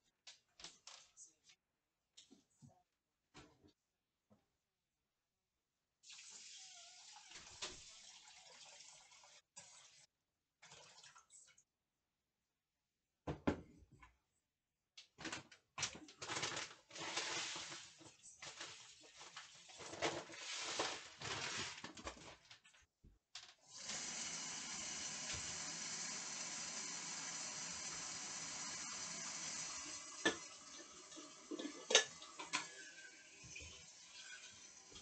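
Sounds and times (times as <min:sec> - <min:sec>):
kitchen rushing and clattering: 0:15.2 - 0:22.6.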